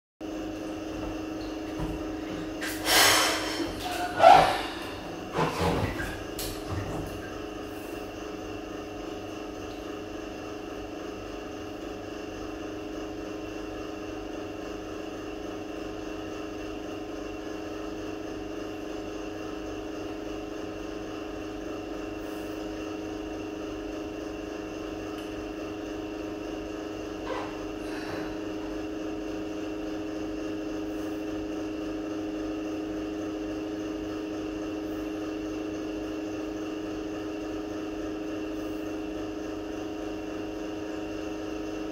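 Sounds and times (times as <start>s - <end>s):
machine hum: 0.2s - 12.9s, 21.5s - 41.9s.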